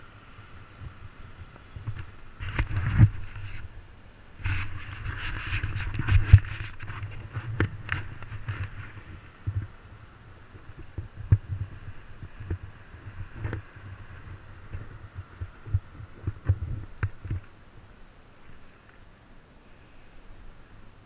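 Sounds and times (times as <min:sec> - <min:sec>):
low thumping and rumble: 0:10.6 - 0:17.4.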